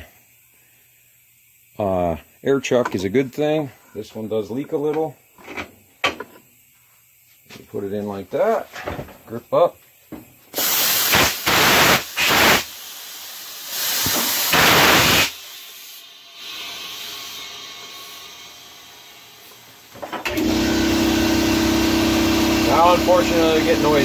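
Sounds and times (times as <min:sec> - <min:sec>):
air compressor humming: 0:10.1 - 0:24.0
compressed air hissing into tire: 0:10.5 - 0:20.3.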